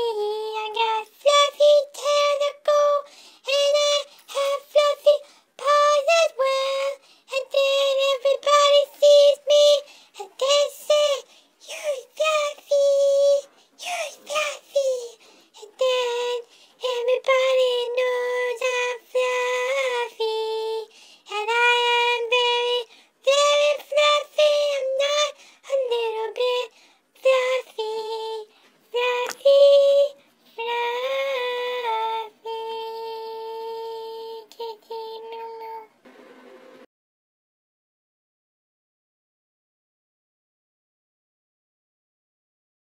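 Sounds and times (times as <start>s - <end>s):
high-pitched cartoon voice singing: 0.0s - 28.4s.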